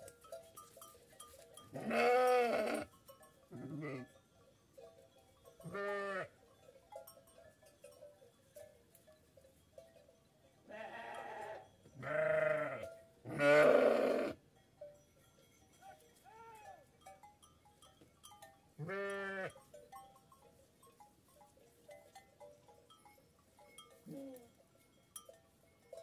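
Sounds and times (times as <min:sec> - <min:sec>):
sheep bleating: 0:01.7 - 0:02.9, 0:03.6 - 0:04.1, 0:05.7 - 0:06.3, 0:10.7 - 0:14.4, 0:18.8 - 0:19.6.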